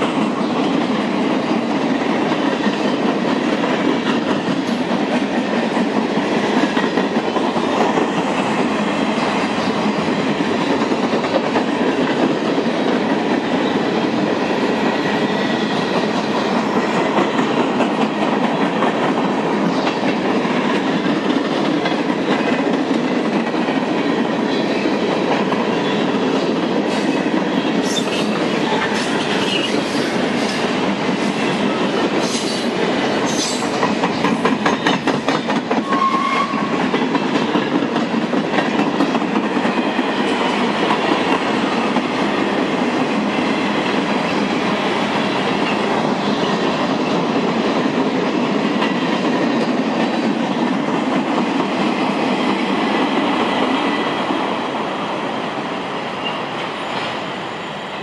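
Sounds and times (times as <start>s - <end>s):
train wheels rumbling on rails: 0.0s - 58.0s
wheels clicking over rail joints: 15.9s - 53.2s.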